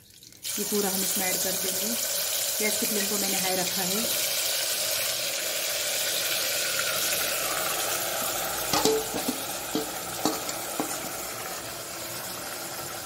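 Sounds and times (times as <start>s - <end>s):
meat sizzling in hot oil: 0.0s - 13.0s
metal clinks against cooker: 8.8s - 11.1s.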